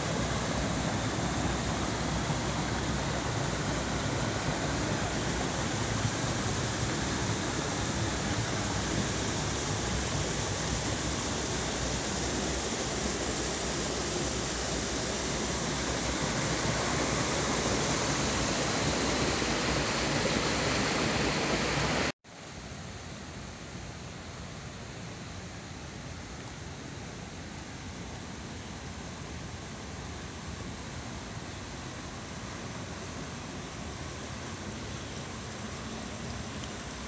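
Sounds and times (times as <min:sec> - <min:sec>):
river water rushing over rocks: 0:00.0 - 0:22.1.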